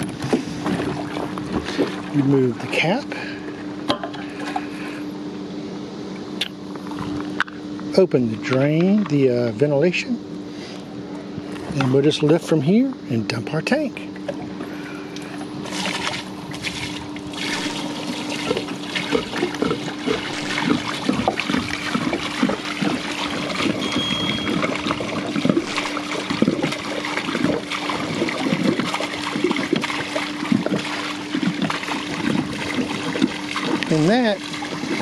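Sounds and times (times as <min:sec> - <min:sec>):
water pouring and gurgling: 0:00.0 - 0:03.0, 0:15.3 - 0:35.0.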